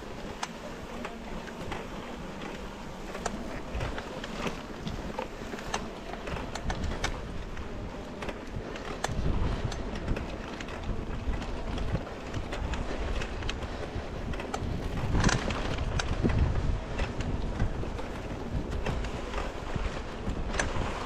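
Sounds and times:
bike tyres rumbling on trail: 0.0s - 21.0s.

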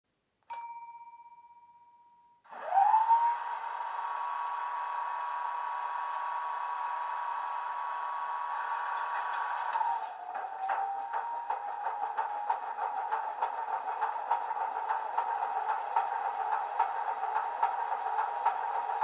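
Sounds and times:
ringing tone: 0.5s - 2.5s
diesel engine starting and idling: 2.5s - 19.0s.

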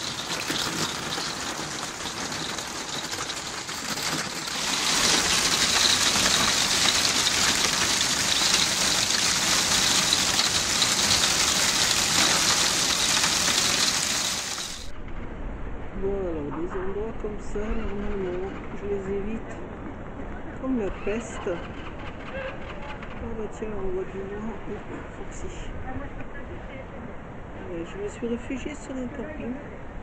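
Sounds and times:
hail and rain drumming on roof: 0.0s - 14.9s.

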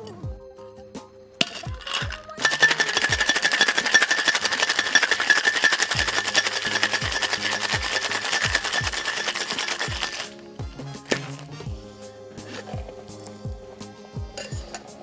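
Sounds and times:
ice rattling in metal cocktail shaker: 1.4s - 10.4s, 11.0s - 11.7s, 12.4s - 13.5s, 14.4s - 15.0s.

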